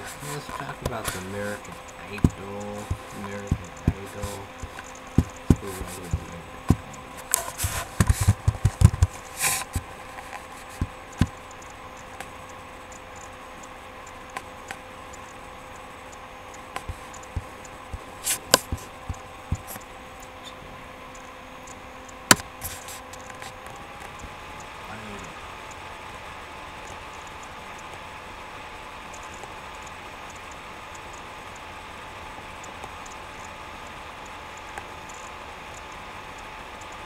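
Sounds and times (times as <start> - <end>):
faint hum: 0.0 - 37.0.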